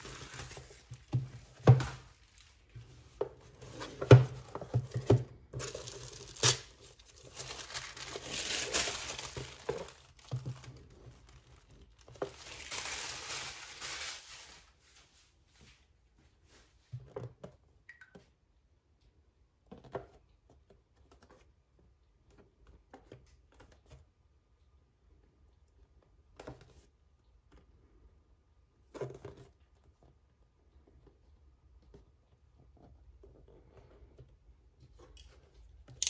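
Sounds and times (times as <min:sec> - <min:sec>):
plastic wrapping crinkling and tearing: 0:00.0 - 0:01.2, 0:05.6 - 0:14.8.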